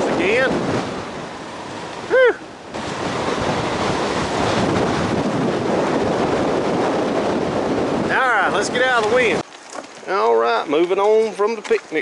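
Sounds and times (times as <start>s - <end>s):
strong wind on microphone: 0.0s - 9.4s
waves washing on shore: 0.0s - 12.0s.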